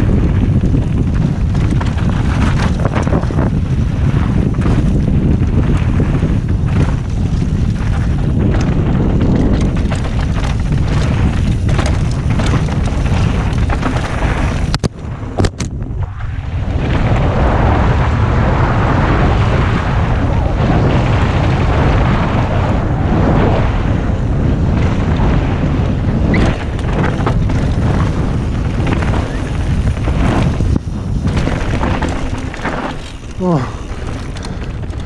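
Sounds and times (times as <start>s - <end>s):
tyres on gravel and dirt: 0.0s - 15.8s, 23.4s - 35.0s
bike rattling over bumps: 0.0s - 35.0s
wind buffeting microphone: 0.0s - 35.0s.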